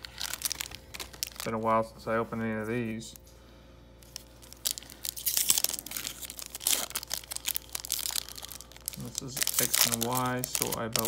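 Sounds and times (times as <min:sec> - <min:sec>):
foil wrapper crinkling and tearing: 0:00.0 - 0:01.7, 0:04.0 - 0:11.0.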